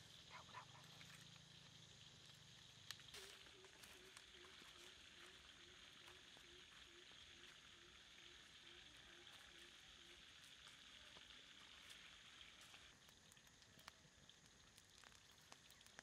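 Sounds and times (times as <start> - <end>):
wood fire pops and crackles: 2.1 - 4.2, 12.5 - 16.0.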